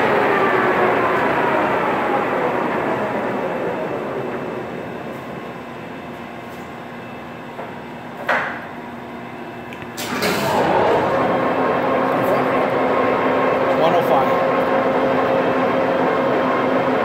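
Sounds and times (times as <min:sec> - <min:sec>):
lathe running: 0:10.0 - 0:17.0.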